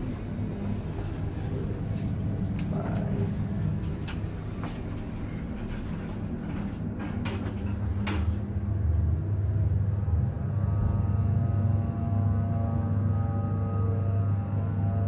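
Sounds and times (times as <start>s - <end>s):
elevator doors sliding shut: 0.0s - 8.8s
elevator low hum: 0.0s - 15.0s.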